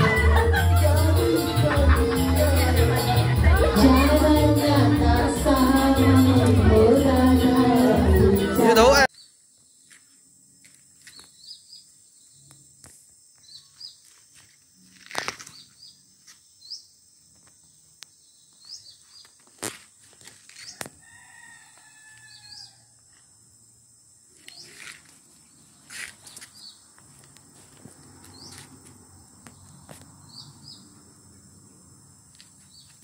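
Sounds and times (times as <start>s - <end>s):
rooster crowing: 20.7s - 23.0s.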